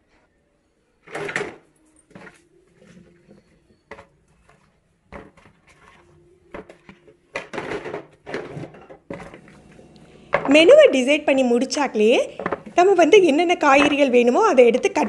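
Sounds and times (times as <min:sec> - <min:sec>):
vegetables dropping into plastic basket: 0:01.0 - 0:03.0, 0:05.1 - 0:09.4.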